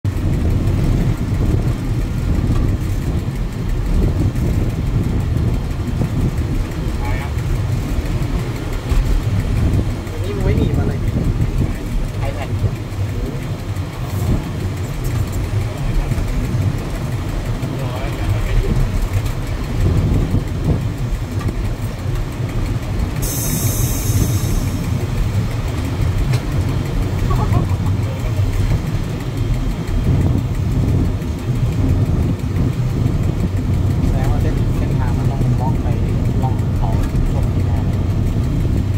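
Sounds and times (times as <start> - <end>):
diesel train rumbling on track: 0.0 - 38.9
high hiss: 23.2 - 24.8.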